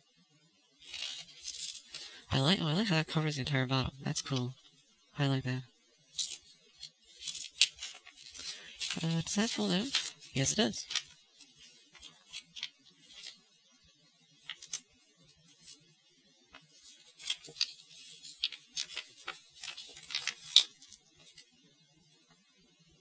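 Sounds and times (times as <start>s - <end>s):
paper pages rustling: 0.8s - 2.2s, 6.2s - 13.4s, 14.4s - 15.8s, 16.6s - 21.5s.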